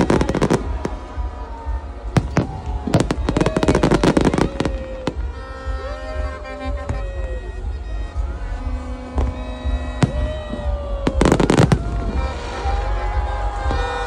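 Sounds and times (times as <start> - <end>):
fireworks bangs and crackles: 0.0 - 14.0
falling firework whistles: 9.2 - 14.0.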